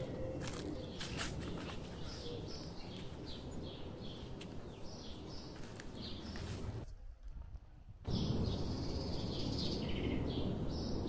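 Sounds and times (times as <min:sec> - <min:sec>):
footsteps: 0:00.0 - 0:03.5, 0:04.1 - 0:06.9
small birds chirping: 0:00.0 - 0:06.8, 0:08.1 - 0:11.0.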